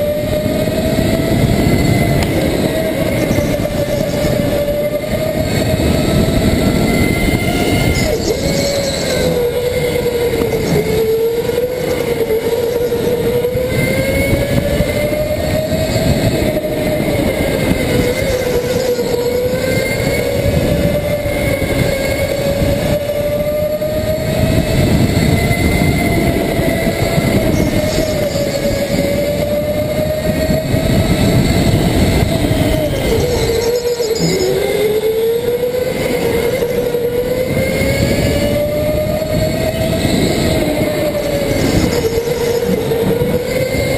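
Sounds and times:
chassis and tyres rumbling: 0:00.0 - 0:43.9
go-kart motor whine: 0:00.0 - 0:43.9.

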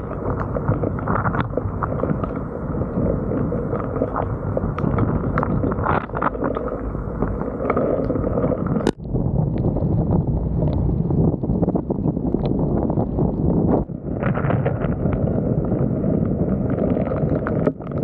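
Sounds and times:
wind buffeting microphone: 0:06.8 - 0:18.0.

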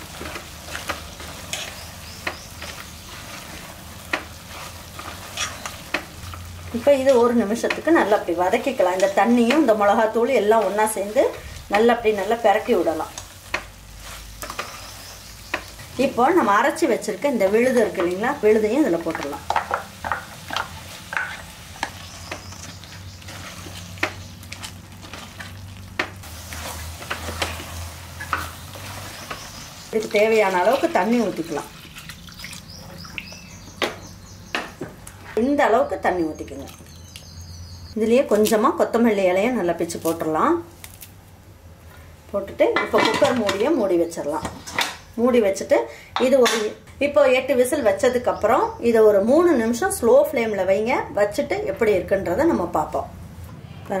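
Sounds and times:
food sizzling in pot: 0:00.0 - 0:34.8
spoon scraping pot: 0:02.6 - 0:06.0.

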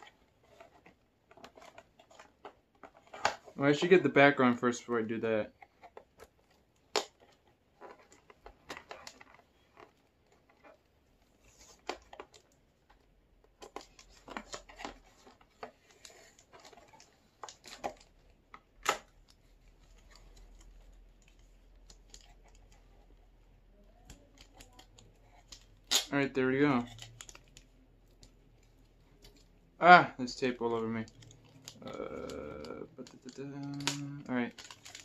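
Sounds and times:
plastic packaging crackling: 0:00.0 - 0:35.0
tape tearing: 0:23.8 - 0:35.0.

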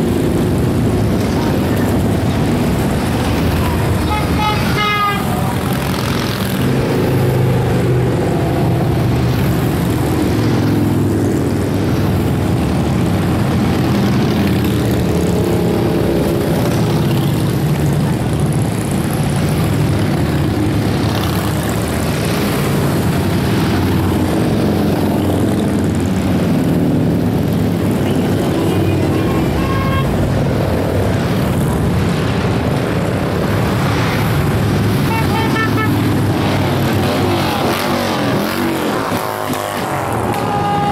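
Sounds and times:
motorcycles passing: 0:00.0 - 0:40.9.

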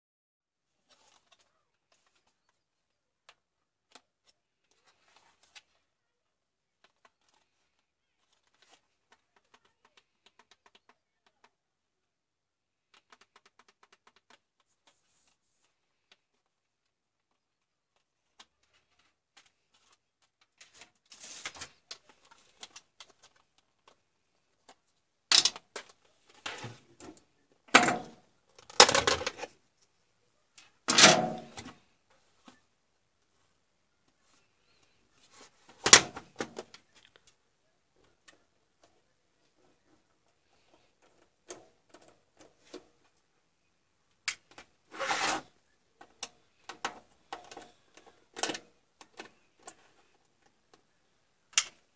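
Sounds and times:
plastic frame clicks and rubbing: 0:12.8 - 0:15.4, 0:24.6 - 0:29.6, 0:34.4 - 0:37.4.

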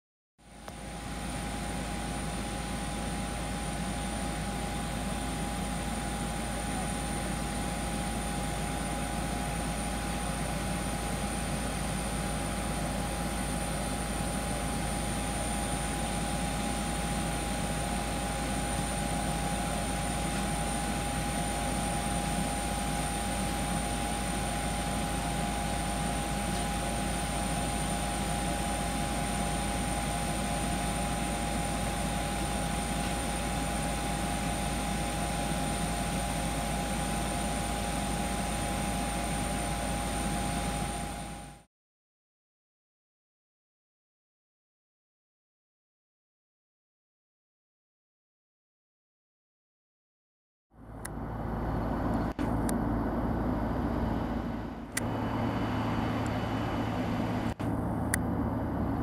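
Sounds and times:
jet aircraft whine and hum: 0:00.4 - 0:41.7, 0:50.8 - 0:59.0.

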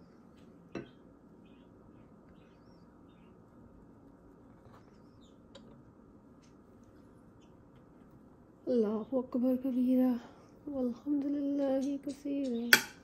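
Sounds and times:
faint small-bird chirps: 0:00.8 - 0:03.4, 0:04.7 - 0:05.6.

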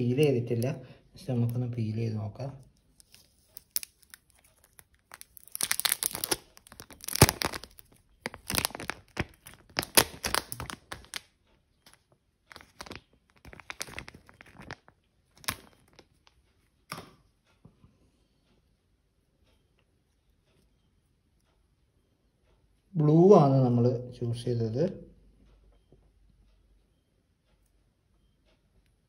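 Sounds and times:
plastic film crackling: 0:02.9 - 0:16.4.

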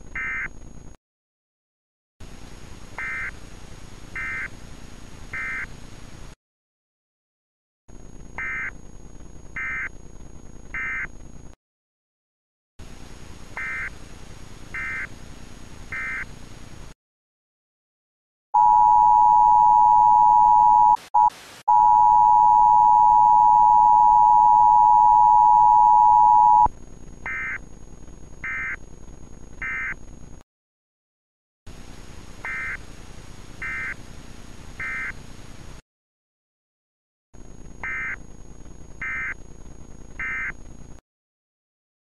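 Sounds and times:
two-tone attention signal: 0:18.6 - 0:26.7.

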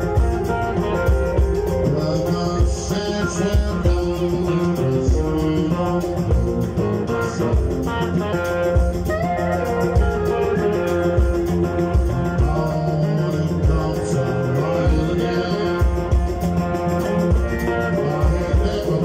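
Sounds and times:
live rock band playing: 0:00.0 - 0:19.0
person singing: 0:00.0 - 0:19.0
steady drum beat: 0:00.0 - 0:19.0.

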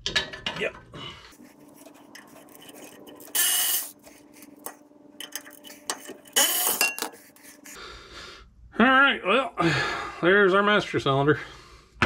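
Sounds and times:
metal scraping: 0:01.3 - 0:07.8.

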